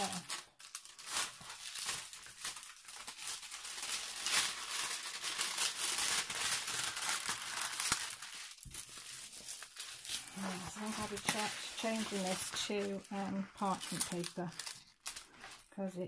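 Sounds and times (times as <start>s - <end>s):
plastic film peeling and crinkling: 0.0s - 15.9s.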